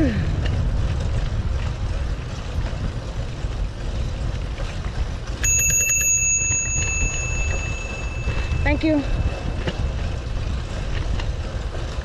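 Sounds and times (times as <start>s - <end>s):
wind rumble on microphone: 0.0s - 12.0s
bicycle bell ringing: 5.4s - 10.4s.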